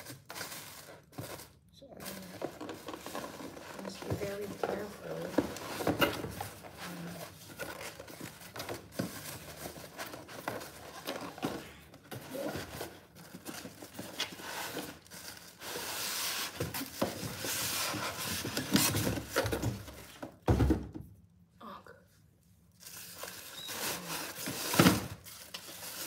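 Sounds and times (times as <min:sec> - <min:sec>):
plastic wrap crinkling: 0:00.0 - 0:19.4, 0:22.7 - 0:26.0.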